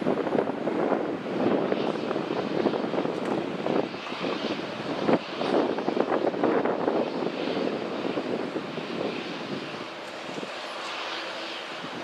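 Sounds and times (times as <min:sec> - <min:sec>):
jet engines rushing: 0:00.0 - 0:12.0.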